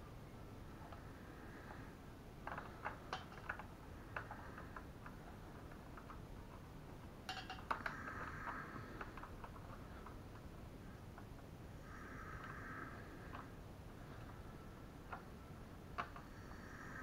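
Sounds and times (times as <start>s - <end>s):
small plastic clicks: 2.4s - 11.5s, 13.2s - 16.4s.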